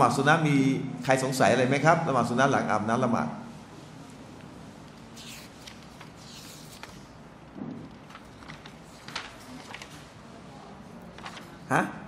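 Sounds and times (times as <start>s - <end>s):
paper rustling: 4.1s - 11.7s.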